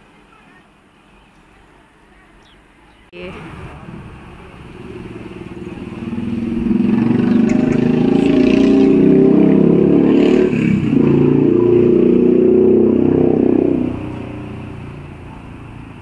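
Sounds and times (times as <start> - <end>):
loud engine running: 3.4 - 16.0.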